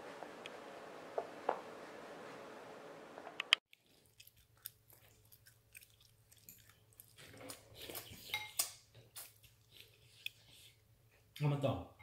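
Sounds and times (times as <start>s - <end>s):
baby chewing and lip smacks: 3.7s - 10.8s.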